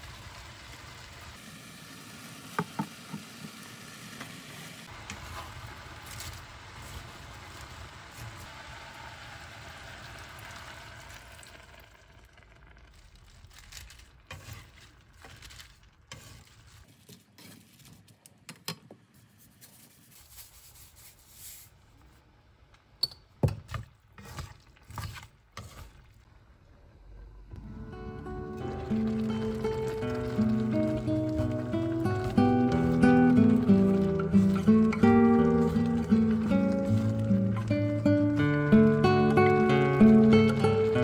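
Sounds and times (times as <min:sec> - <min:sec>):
vegetables sizzling in a pan: 0:00.0 - 0:16.9, 0:27.6 - 0:41.0
chopsticks tossing vegetables: 0:13.5 - 0:18.1, 0:24.2 - 0:26.1, 0:29.1 - 0:41.0.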